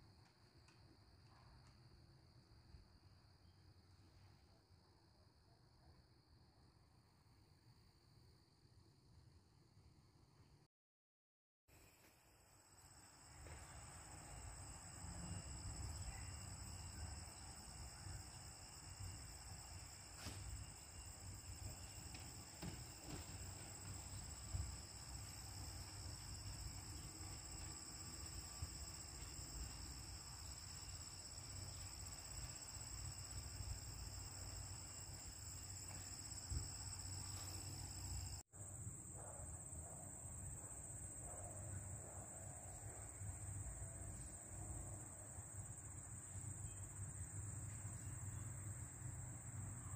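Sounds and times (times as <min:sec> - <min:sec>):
high-pitched insect chorus: 0:12.6 - 0:38.7.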